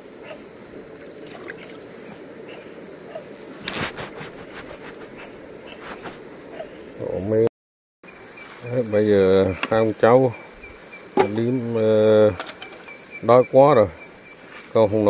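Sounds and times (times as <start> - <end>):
shallow stream hissing: 0.0 - 7.2
crickets trilling: 0.0 - 15.0.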